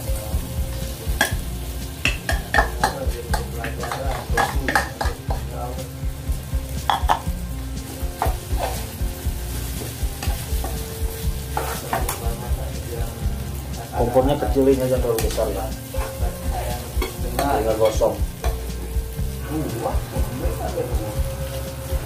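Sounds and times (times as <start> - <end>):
rice sizzling in a pan: 0.0 - 22.0
metal ladle scraping pan: 3.6 - 5.2, 8.2 - 9.0, 11.5 - 12.2.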